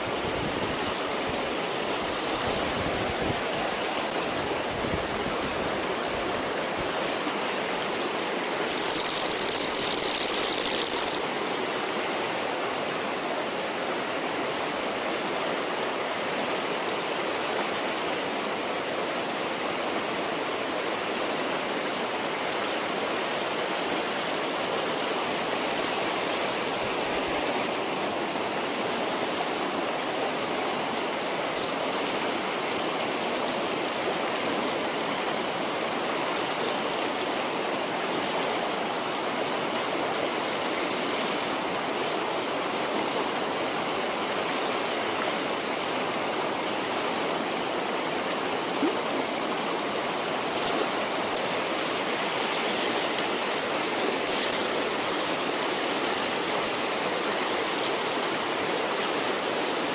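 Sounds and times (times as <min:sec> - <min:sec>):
river rushing over boulders: 0:00.0 - 0:59.9.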